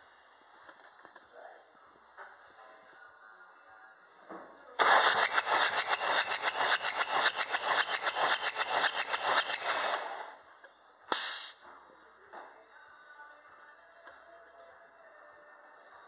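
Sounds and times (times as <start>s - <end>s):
engine cranking on starter: 4.8s - 10.3s
short hiss: 11.1s - 11.6s.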